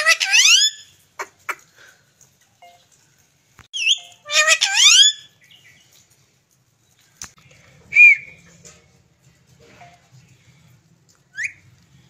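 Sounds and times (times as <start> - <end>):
parakeet calling: 0.0 - 0.8, 3.8 - 5.3.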